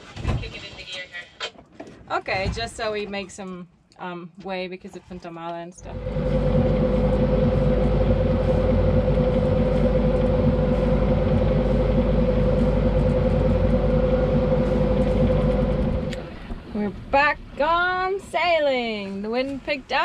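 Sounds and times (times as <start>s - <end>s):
boat engine droning: 5.8s - 18.4s.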